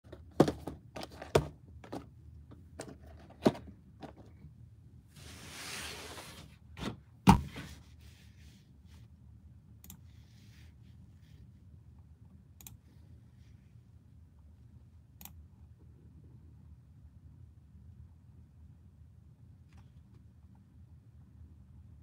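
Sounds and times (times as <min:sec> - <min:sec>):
cardboard sliding on cardboard: 0:05.2 - 0:06.6.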